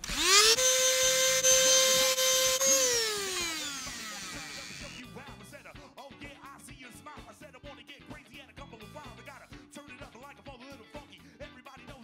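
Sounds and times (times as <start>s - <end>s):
electric sander whining: 0.0s - 5.0s.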